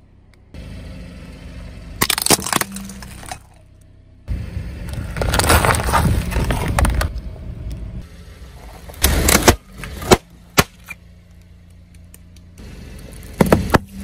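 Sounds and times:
car engine running low: 0:00.0 - 0:14.0
sharp cracks: 0:02.0 - 0:03.5
tyre crushing objects: 0:02.0 - 0:03.6, 0:05.1 - 0:07.1.

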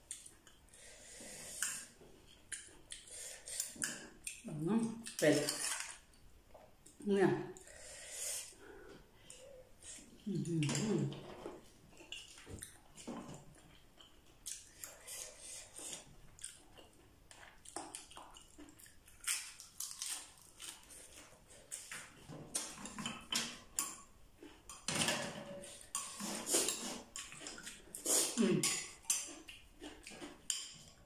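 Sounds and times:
crunching and chewing lettuce: 0:12.0 - 0:23.0.

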